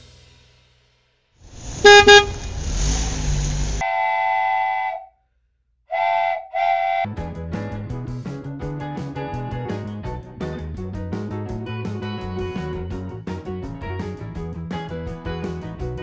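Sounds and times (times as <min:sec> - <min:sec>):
hissing noise: 0:01.4 - 0:03.8
toy train whistle toots: 0:01.8 - 0:02.5, 0:03.8 - 0:05.2, 0:05.9 - 0:07.1
background music: 0:06.9 - 0:16.0.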